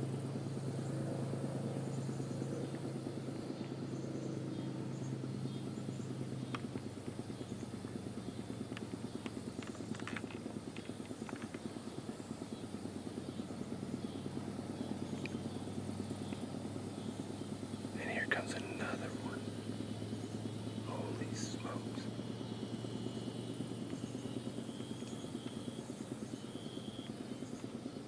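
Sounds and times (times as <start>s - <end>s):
low engine drone with flutter: 0.0s - 28.0s
faint sharp clicks: 6.4s - 7.2s, 8.7s - 11.7s, 15.2s - 15.5s.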